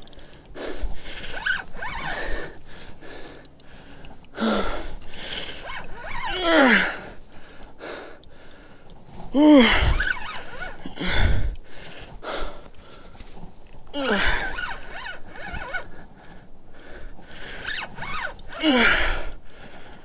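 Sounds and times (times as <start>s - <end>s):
man breathing hard: 0.0s - 13.3s, 15.8s - 17.6s, 18.4s - 20.0s
man groaning with strain: 6.3s - 7.2s, 9.3s - 10.1s, 14.0s - 14.5s.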